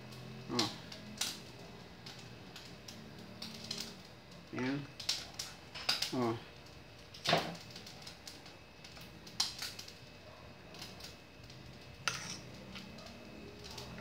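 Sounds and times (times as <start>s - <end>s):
metal fork clinking on pot: 12.1s - 12.9s.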